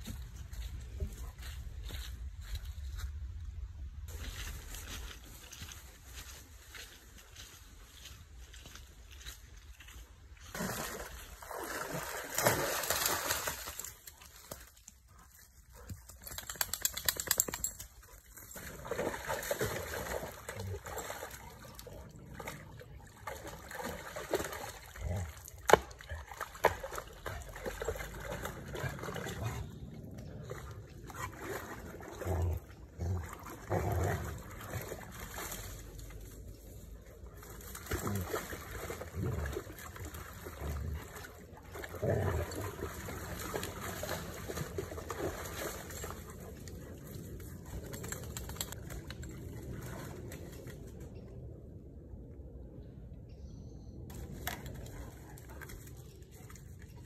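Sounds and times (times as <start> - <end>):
dog splashing in water: 10.4 - 14.8, 16.0 - 29.7, 30.5 - 36.2, 37.4 - 50.6
stream trickling: 16.2 - 50.3.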